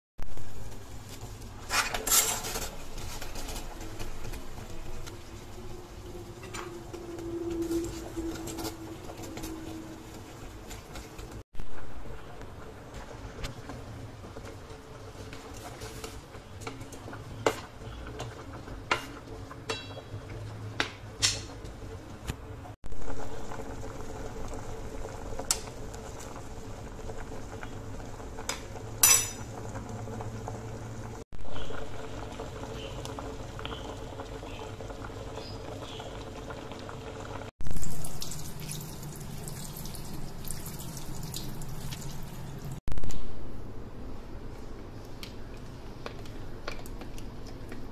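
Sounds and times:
water boiling in a pot: 0.2 - 42.8, 44.5 - 47.9
spatula tapping a pot: 19.7 - 20.1
tap water running: 36.2 - 42.8.

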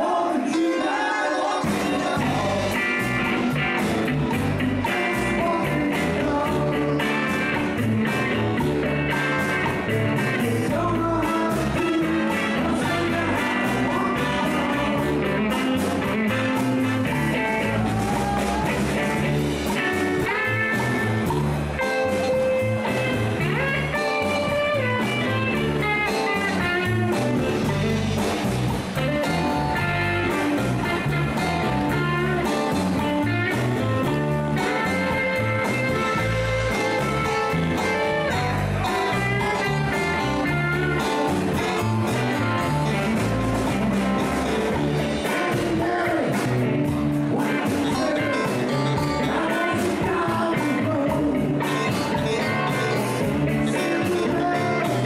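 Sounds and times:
person singing: 0.0 - 8.3, 9.1 - 28.4, 44.7 - 55.0
live blues-rock band: 0.1 - 55.0.

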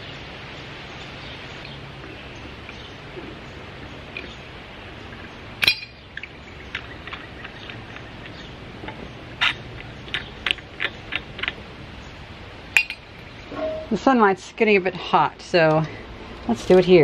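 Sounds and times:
pipe wrench clanking on iron pipe: 5.6 - 6.0.

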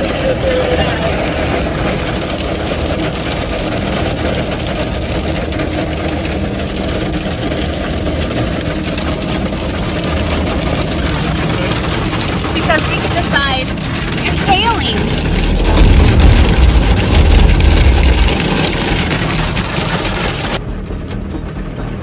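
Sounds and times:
rain and hail on a vehicle: 0.0 - 22.0
vehicle engine running: 0.0 - 22.0.

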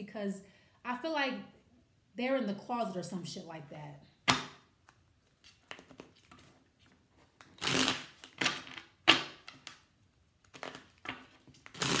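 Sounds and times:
cards being shuffled: 4.4 - 12.0.

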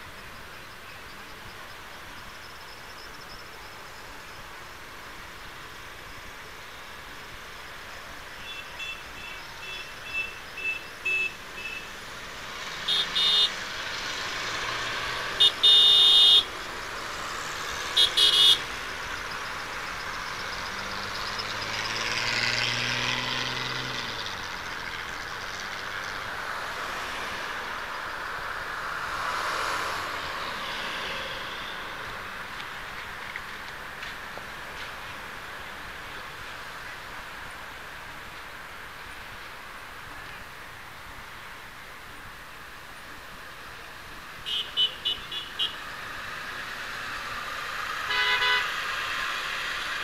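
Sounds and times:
street traffic: 0.0 - 50.0
car horns honking: 8.4 - 11.9, 12.7 - 13.6, 15.1 - 16.6, 17.8 - 18.8, 44.4 - 45.8, 48.1 - 48.8
vehicle driving past: 20.2 - 24.9.

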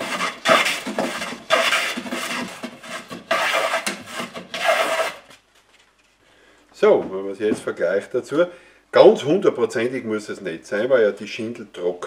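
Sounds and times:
plane scraping shaving from wood: 0.0 - 5.3.

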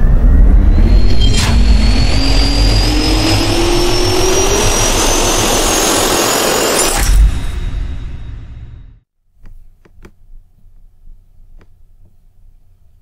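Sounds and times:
jet engine spooling up: 0.0 - 8.7
sharp hit: 0.0 - 9.0.

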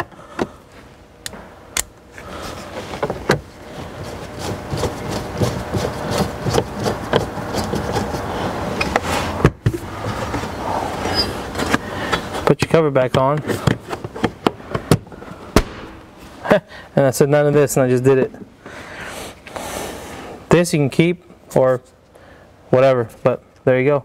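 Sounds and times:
sharp knock: 15.6 - 16.0.

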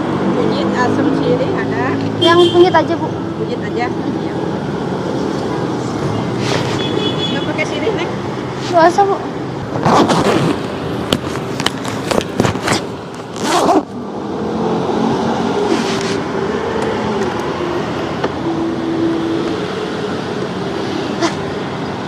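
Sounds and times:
street traffic: 0.0 - 22.0
vehicle engine humming: 0.0 - 22.0
sharp knocks and rustles: 9.8 - 13.8.

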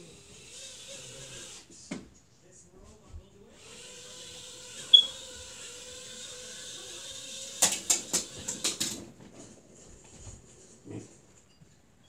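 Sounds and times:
toy propellers whirring: 0.0 - 1.7, 3.5 - 9.1.

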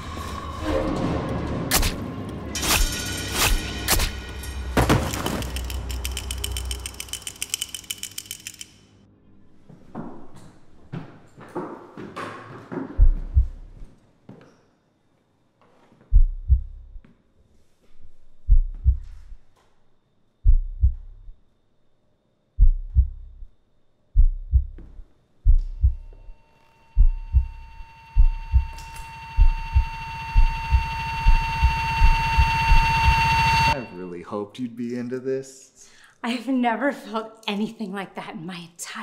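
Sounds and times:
heartbeat thumps: 13.0 - 13.9, 16.1 - 17.0, 18.4 - 19.4, 20.4 - 21.4, 22.6 - 23.6, 24.2 - 26.3, 27.0 - 32.8
high ringing tones: 26.0 - 34.1.

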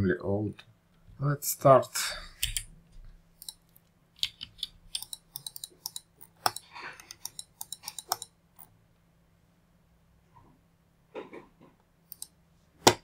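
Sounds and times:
keyboard and mouse clicks: 2.4 - 2.7, 3.4 - 8.4, 12.1 - 13.0.

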